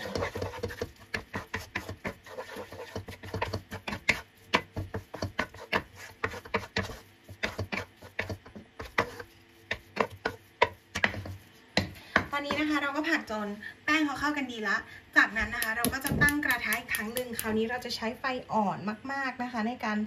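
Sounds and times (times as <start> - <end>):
utensil scraping and knocking pan: 0.0 - 12.8.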